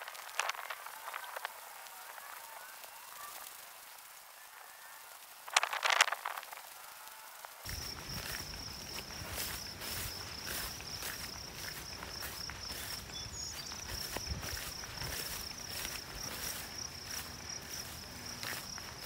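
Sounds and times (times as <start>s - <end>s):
high-pitched insect trill: 0.0s - 19.0s
footsteps swishing through grass: 7.4s - 19.0s.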